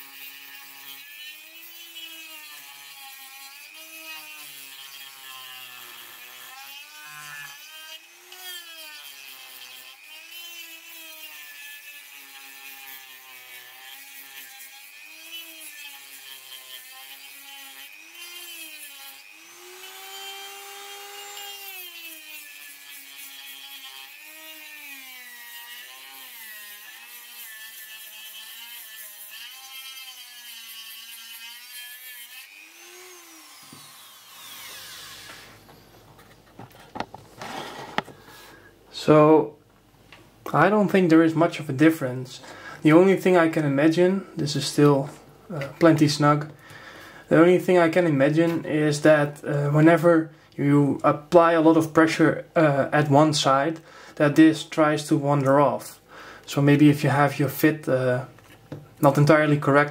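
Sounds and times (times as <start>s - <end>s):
rotary tool motor whine: 18.0s - 22.7s, 32.4s - 35.9s.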